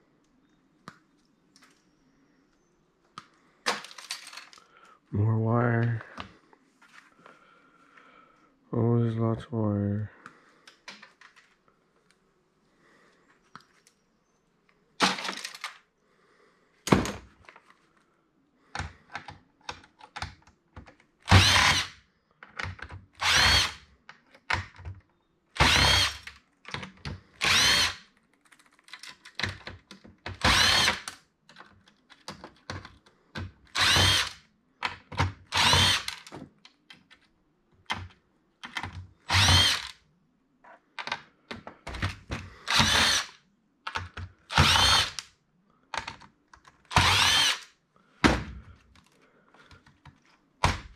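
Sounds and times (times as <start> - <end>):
clicks and knocks of parts: 3.1 - 4.8, 10.6 - 11.6, 15.0 - 15.9, 18.7 - 21.1, 28.1 - 40.0, 40.8 - 45.3, 45.9 - 50.9
cordless drill whining: 21.3 - 21.9, 23.2 - 23.8, 25.6 - 26.3, 27.4 - 28.0, 30.4 - 31.1, 33.7 - 34.4, 35.4 - 36.3, 39.3 - 40.0, 42.4 - 43.4, 44.5 - 45.2, 46.9 - 47.7.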